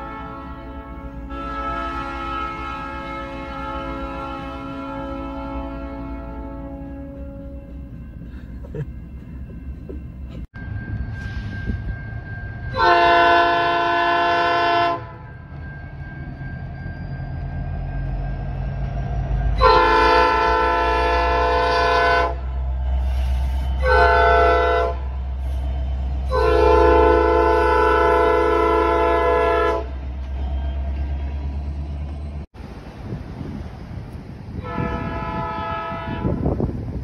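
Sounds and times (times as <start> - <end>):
locomotive horn blasts: 0.0 - 7.8, 12.7 - 15.2, 19.5 - 22.5, 23.8 - 25.2, 26.2 - 30.1, 34.6 - 36.8
diesel engine rumble: 7.0 - 12.7.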